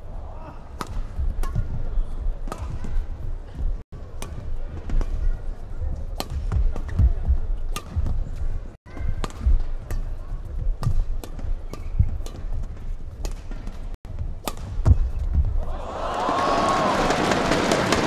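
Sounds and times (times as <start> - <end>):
rackets striking shuttlecock: 0.8 - 1.8, 4.1 - 5.2, 6.1 - 8.3, 9.0 - 10.2, 10.8 - 15.4.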